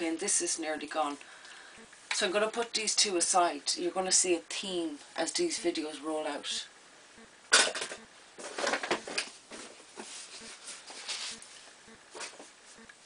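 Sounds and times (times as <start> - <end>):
plastic bottles rattling and scraping: 7.6 - 11.3.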